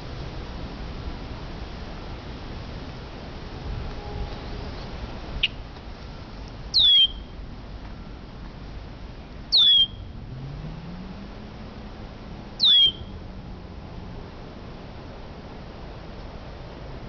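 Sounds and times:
bird whistled calls: 6.7s - 7.3s, 9.5s - 10.1s, 12.6s - 13.2s.

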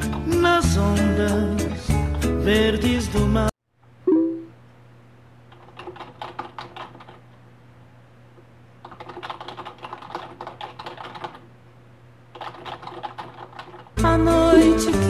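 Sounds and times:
low steady hum: 3.7s - 9.0s
chat message chime: 4.1s - 4.5s
typing on computer keyboard: 5.5s - 7.2s, 8.8s - 11.5s, 12.3s - 13.9s.

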